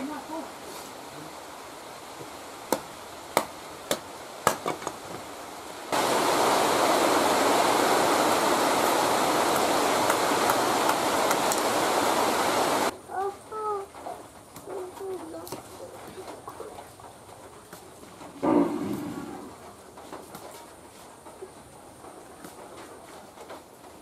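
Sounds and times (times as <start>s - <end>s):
loud steady rushing hiss: 0.0s - 24.0s
sickle blade knocking bamboo: 2.7s - 5.2s.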